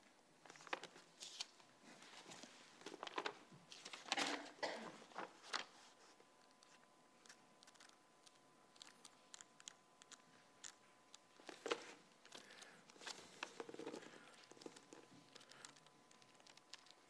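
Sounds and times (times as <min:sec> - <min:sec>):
paper pages rustling: 0:00.4 - 0:17.0.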